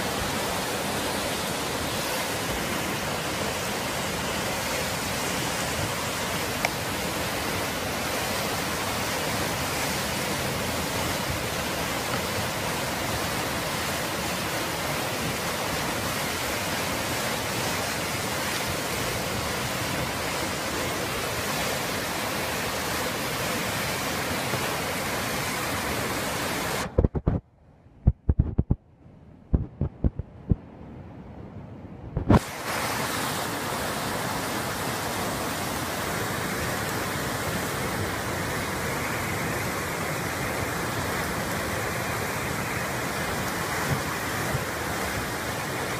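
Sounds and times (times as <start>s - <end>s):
floodwater rushing: 0.0s - 27.4s, 32.2s - 45.9s
sharp knocks: 29.6s - 30.6s.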